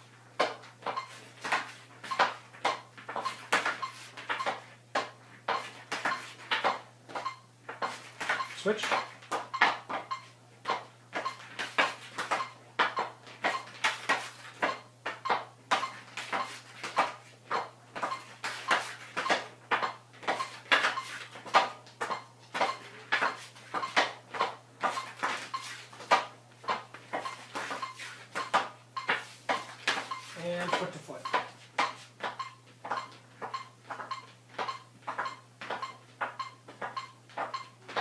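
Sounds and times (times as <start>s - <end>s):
hockey stick tapping ball on floor: 26.0s - 38.0s.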